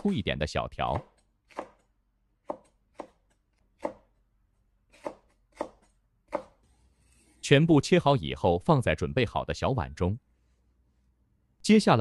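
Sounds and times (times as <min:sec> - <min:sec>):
knife chopping on cutting board: 0:01.0 - 0:01.8, 0:02.4 - 0:04.1, 0:04.9 - 0:06.6.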